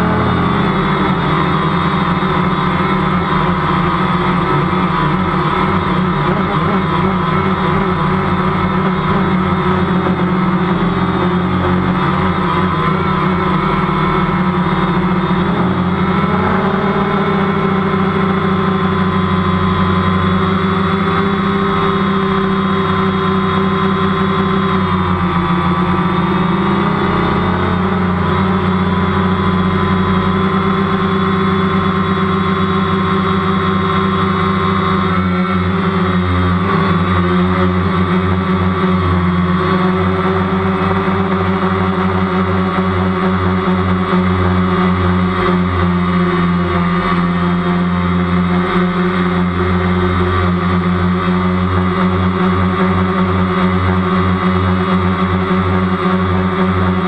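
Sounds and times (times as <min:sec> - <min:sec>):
drone propellers buzzing: 0:00.0 - 0:57.0.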